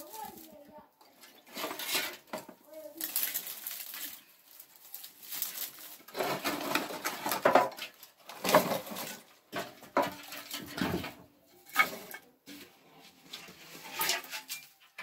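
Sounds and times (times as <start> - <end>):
dry grass rustling by hand: 0.0 - 15.0.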